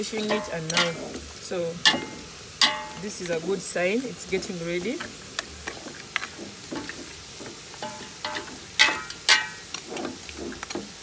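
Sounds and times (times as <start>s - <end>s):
ringing clanks against pot: 1.9s - 3.0s, 7.8s - 9.7s.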